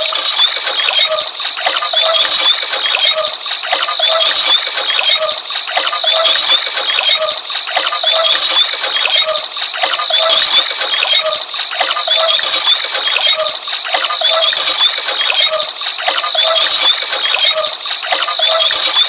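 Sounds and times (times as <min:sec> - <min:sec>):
toy mechanism rattling whir: 0:00.0 - 0:19.0.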